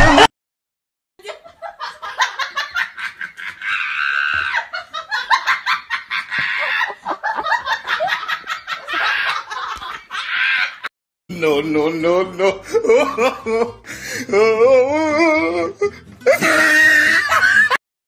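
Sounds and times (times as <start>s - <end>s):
laughter bursts: 1.2s - 10.9s, 16.3s - 17.8s.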